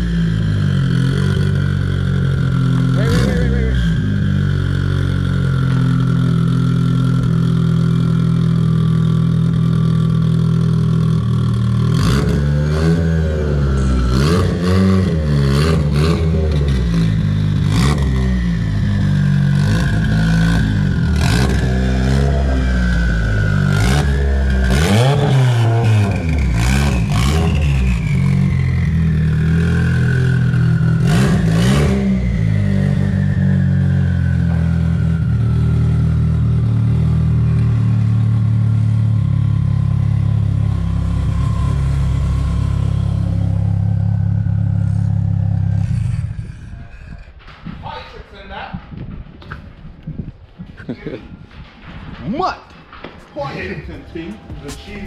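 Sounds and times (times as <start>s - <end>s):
turbocharged car engine revving: 0.0s - 47.4s.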